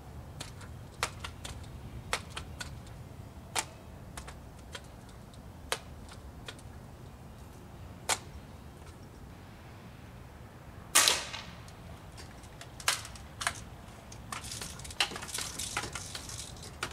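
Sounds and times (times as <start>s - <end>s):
air rifle clicks and clacks: 0.4s - 3.0s, 3.6s - 6.7s, 11.0s - 16.9s.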